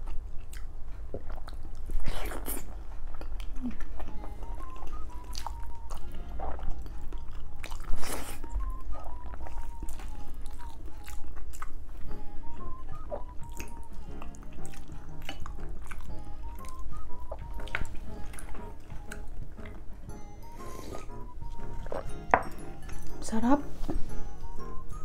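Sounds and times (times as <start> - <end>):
close chewing: 0.0 - 19.9
soft background music: 0.0 - 25.0.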